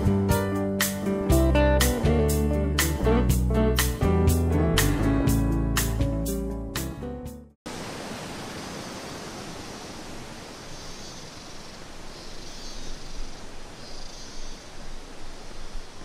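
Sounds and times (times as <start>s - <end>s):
faint high hiss: 7.7s - 16.0s.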